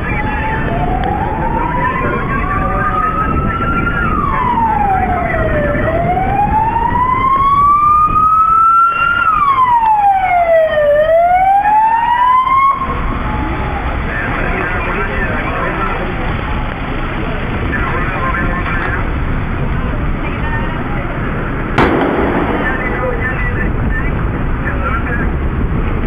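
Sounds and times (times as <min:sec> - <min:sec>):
emergency vehicle siren wailing: 0:00.0 - 0:26.0
dense low background noise: 0:12.8 - 0:25.8.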